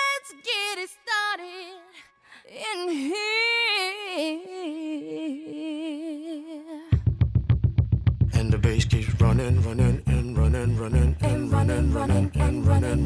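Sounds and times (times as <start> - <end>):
solo voice singing with vibrato: 0.0 - 7.0, 9.6 - 13.0.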